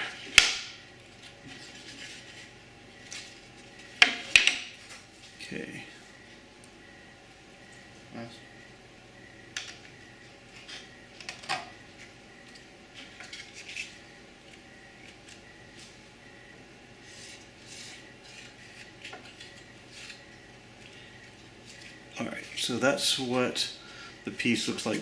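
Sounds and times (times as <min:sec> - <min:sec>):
wooden pieces clicking and tapping: 0:04.0 - 0:04.7.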